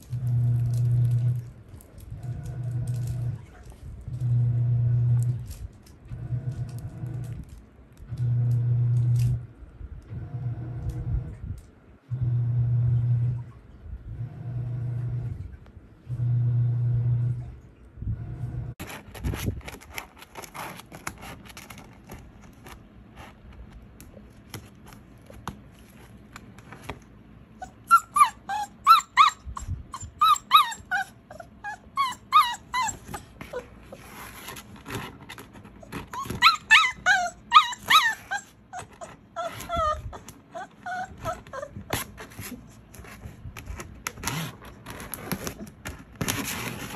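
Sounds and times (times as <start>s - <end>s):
low steady hum: 0.0s - 46.9s
puppy whimpering and yipping: 27.6s - 34.0s, 35.8s - 42.2s.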